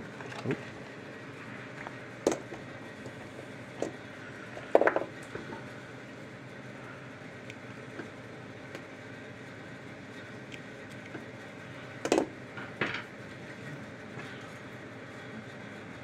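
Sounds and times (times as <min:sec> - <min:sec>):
background hum: 0:00.0 - 0:16.0
wires and crimpers handled: 0:00.1 - 0:00.9, 0:01.7 - 0:05.6, 0:10.3 - 0:11.3.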